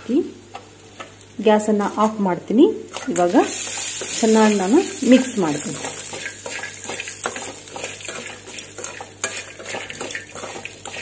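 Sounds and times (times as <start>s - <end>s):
oil sizzling: 0.5s - 11.0s
metal spoon scraping a pan: 2.9s - 4.3s, 5.7s - 11.0s.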